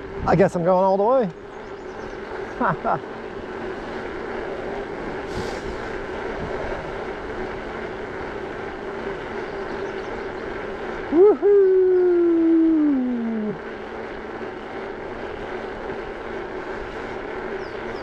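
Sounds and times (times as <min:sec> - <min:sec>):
constant hum: 0:00.0 - 0:18.0
wind and tyre noise: 0:00.0 - 0:18.0
person whooping: 0:11.1 - 0:13.6.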